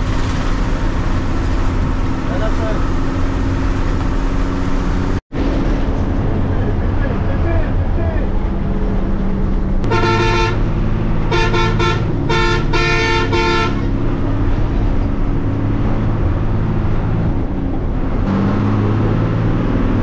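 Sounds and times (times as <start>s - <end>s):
bus engine running: 0.0s - 20.0s
bus horn toots: 9.8s - 14.0s.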